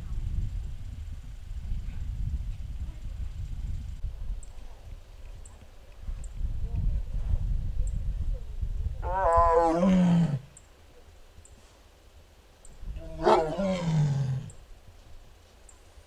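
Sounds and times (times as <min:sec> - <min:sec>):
tiger calling: 0:09.0 - 0:10.6, 0:13.0 - 0:14.6.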